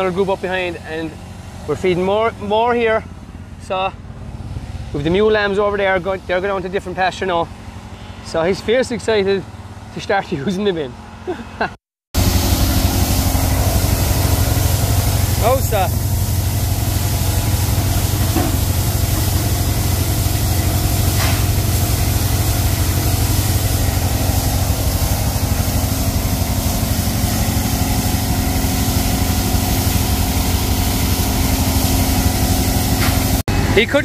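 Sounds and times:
heavy engine rumbling: 0.0s - 11.6s, 12.2s - 34.0s.

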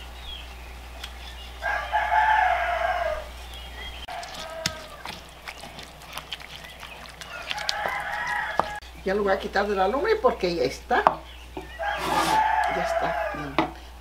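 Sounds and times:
rooster crowing: 1.6s - 3.4s, 4.1s - 5.3s, 7.2s - 8.8s, 11.6s - 13.7s
stone pestle grinding in mortar: 4.1s - 8.8s, 11.9s - 12.5s.

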